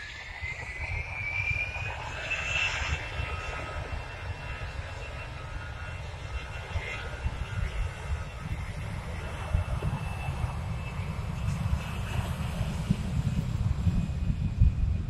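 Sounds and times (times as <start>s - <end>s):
jet engines spooling up: 0.0s - 15.0s
low gusty rumble: 6.8s - 15.0s.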